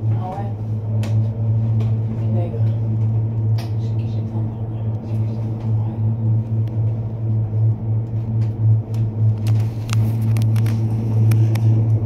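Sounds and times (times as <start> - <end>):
gondola cabin hum: 0.0 - 12.0.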